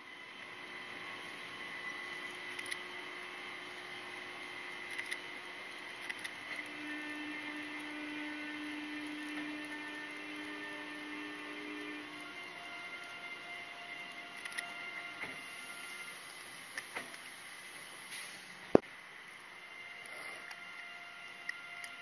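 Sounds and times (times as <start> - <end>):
electric locomotive whine: 0.0 - 22.0.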